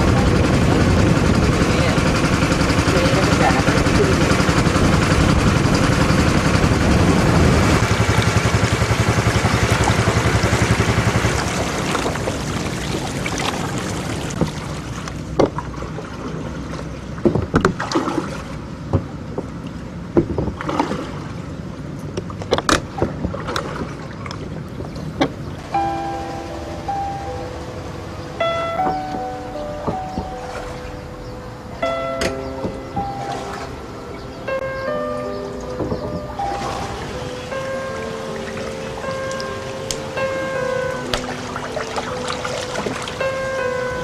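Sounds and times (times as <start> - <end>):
boat motor and water noise: 0.0 - 44.0
sharp knocks: 20.2 - 20.6, 35.8 - 36.3.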